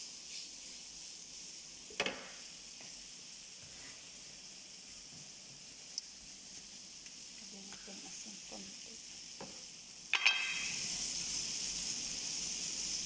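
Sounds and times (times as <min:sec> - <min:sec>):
vegetables sizzling in a frying pan: 0:00.0 - 0:13.0
sharp clink: 0:10.2 - 0:10.8.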